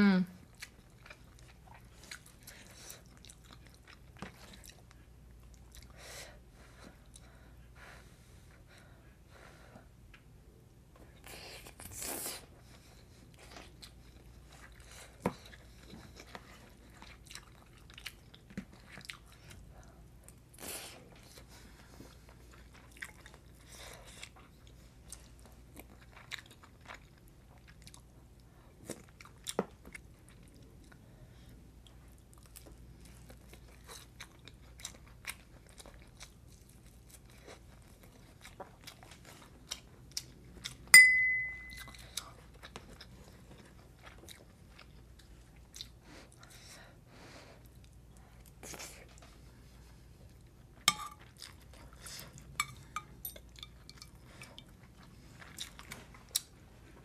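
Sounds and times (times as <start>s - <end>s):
person chewing: 0.4s - 6.0s, 13.3s - 19.6s, 20.2s - 28.1s, 28.8s - 31.0s, 32.1s - 46.7s, 50.3s - 56.6s
loud ringing clink: 41.0s - 41.8s.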